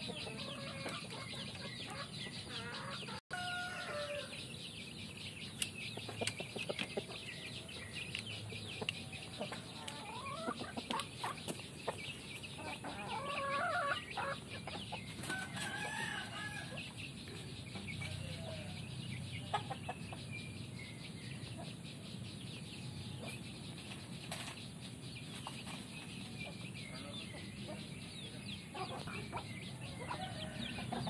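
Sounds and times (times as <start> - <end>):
rooster clucking: 12.6 - 14.8.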